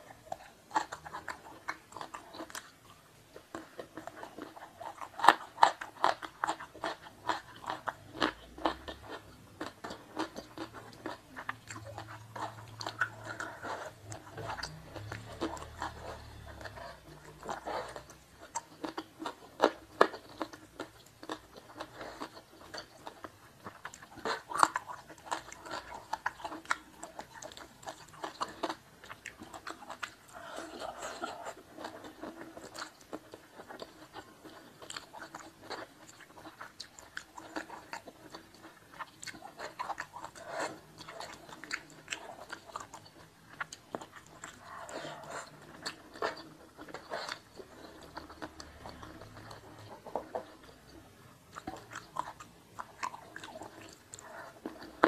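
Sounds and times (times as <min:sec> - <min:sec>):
close-up chewing: 0:00.0 - 0:55.0
food crunch: 0:00.0 - 0:55.0.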